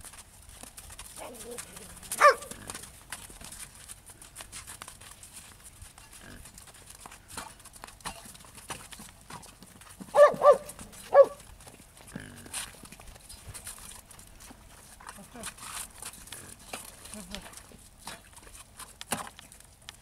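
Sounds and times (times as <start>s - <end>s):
horse hooves clopping on ice: 0.0s - 20.0s
dog barking: 2.2s - 2.5s, 10.1s - 11.4s.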